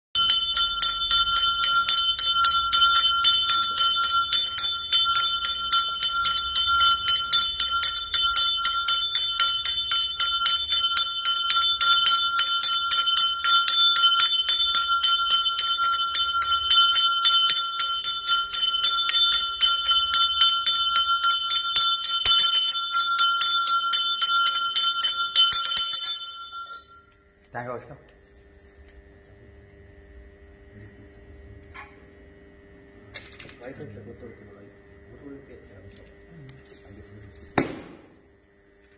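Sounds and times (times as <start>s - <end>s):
hand bell ringing fast: 0.2s - 27.1s.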